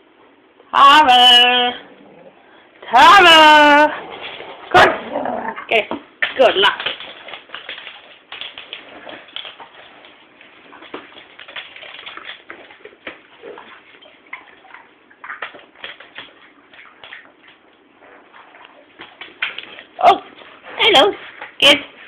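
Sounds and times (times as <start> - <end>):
dogs scuffling in play: 6.2 - 22.0.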